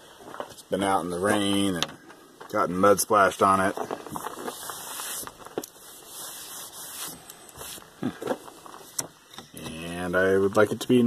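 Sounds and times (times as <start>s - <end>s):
plywood board handled: 3.7s - 9.8s
rubbing on metal tabletop: 4.2s - 8.0s.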